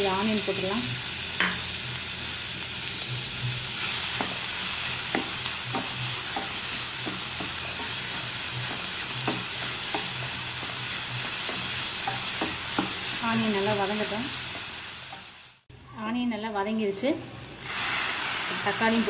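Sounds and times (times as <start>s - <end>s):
onion sizzling in oil: 0.0s - 15.7s, 16.6s - 19.0s
spatula scraping and tapping pan: 3.8s - 13.2s.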